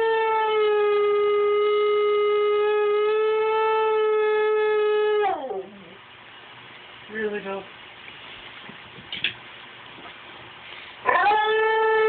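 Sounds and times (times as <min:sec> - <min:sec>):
husky howling: 0:03.4 - 0:06.0, 0:11.0 - 0:12.0.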